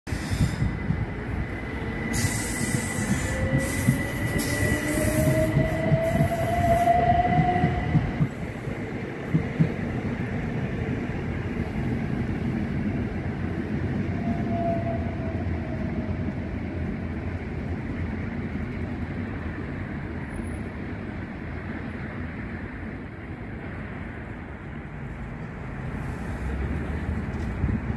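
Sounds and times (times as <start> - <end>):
rumble of train wheels: 0.1 - 27.9
clicks at rail joints: 9.2 - 10.0.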